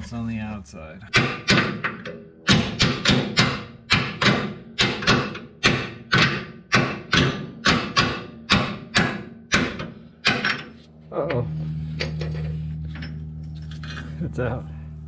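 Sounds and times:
hammer striking metal: 1.1 - 10.8.

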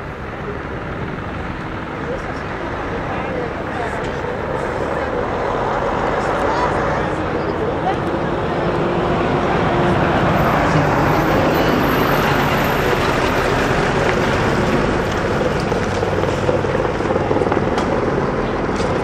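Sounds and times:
heavy machinery engine running: 0.0 - 19.0.

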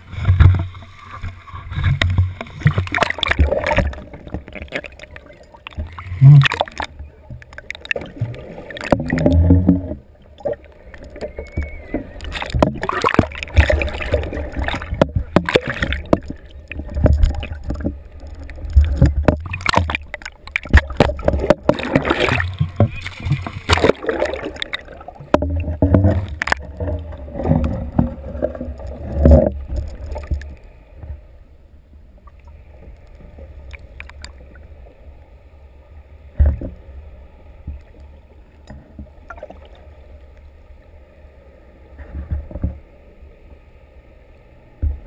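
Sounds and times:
water sloshing and gurgling: 0.0 - 45.0
low thumps and knocks: 25.2 - 30.4.

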